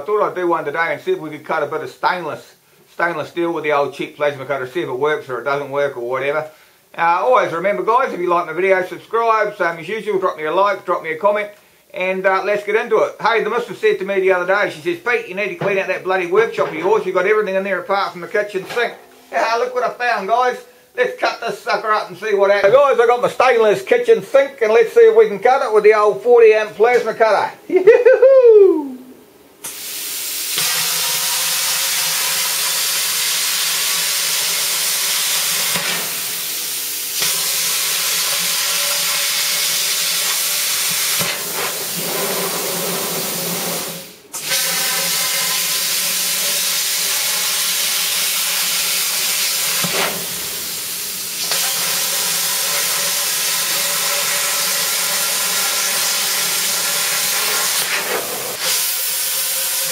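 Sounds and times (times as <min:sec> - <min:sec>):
plasma cutter torch hissing: 0:29.6 - 0:59.9.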